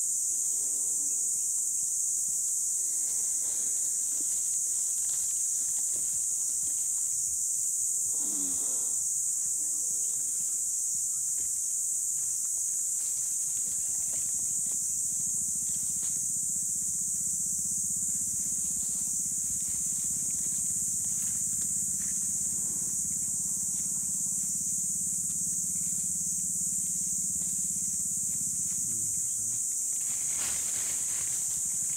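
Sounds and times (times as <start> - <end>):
high-pitched insect drone: 0.0 - 31.9
rustles of dry leaf litter: 29.9 - 31.9.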